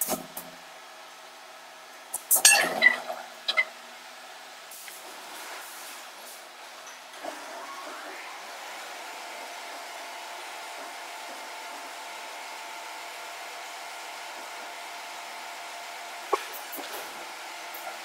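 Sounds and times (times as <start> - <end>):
machinery whirring hum: 0.0 - 18.0
rising whine: 7.1 - 12.6.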